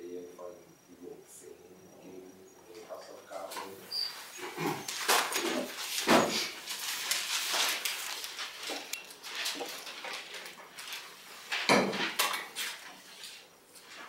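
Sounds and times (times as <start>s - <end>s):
handling noises at desks: 2.8s - 14.0s
paper rustling: 4.1s - 14.0s.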